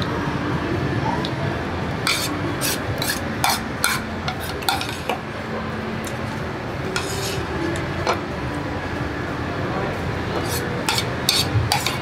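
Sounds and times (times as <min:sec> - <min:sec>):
metal spoon scraping ceramic bowl: 0:02.1 - 0:05.2, 0:07.0 - 0:07.5, 0:10.4 - 0:12.0.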